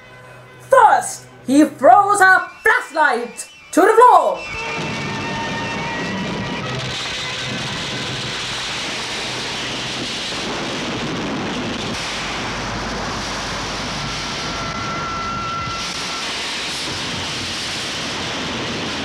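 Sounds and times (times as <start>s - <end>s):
thin high tone: 0.6s - 5.9s
rushing rumbling noise: 4.4s - 19.0s.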